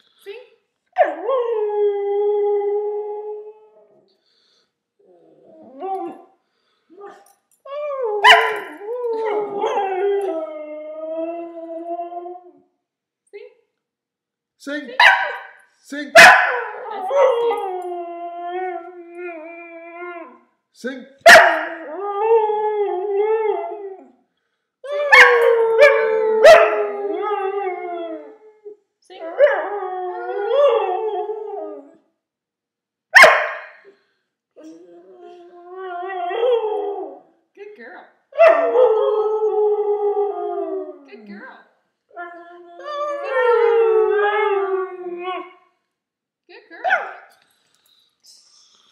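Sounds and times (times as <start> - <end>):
dog howling: 24.9 - 28.4.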